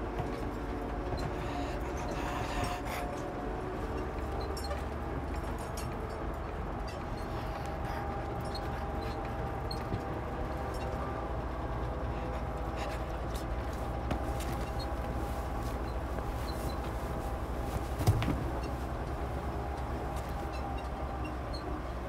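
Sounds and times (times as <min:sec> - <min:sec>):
vehicle interior rumble: 0:00.0 - 0:22.0.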